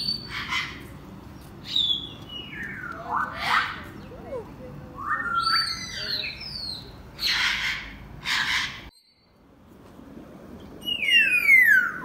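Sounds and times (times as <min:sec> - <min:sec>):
parrot harsh squawks: 0:07.2 - 0:08.8.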